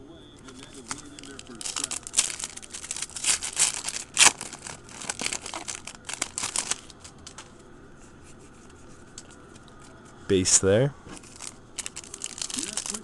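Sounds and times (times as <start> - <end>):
foil wrapper crinkling: 0.4 - 7.5, 11.2 - 13.0.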